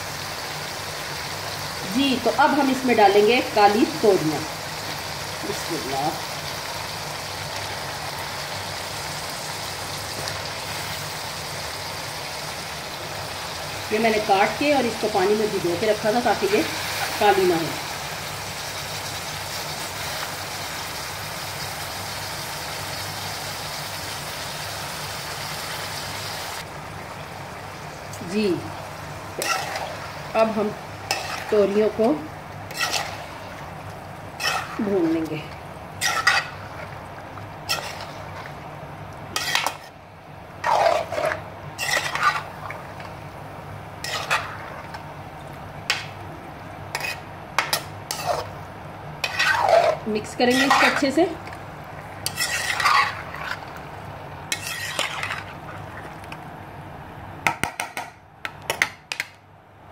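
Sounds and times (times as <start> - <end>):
gourd sizzling in oil: 0.0 - 57.2
metal spoon scraping pan: 29.4 - 33.4, 34.4 - 35.2, 36.0 - 36.6, 37.7 - 38.4, 39.4 - 40.0, 40.6 - 42.5, 44.0 - 45.0, 46.9 - 48.5, 49.2 - 51.4, 52.2 - 53.7, 54.5 - 55.6.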